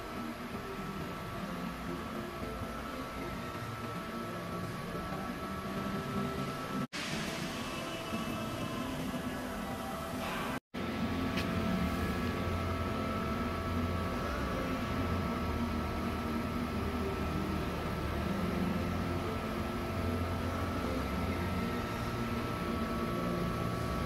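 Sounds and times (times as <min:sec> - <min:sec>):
machine hum with low rumble: 0:00.0 - 0:24.0.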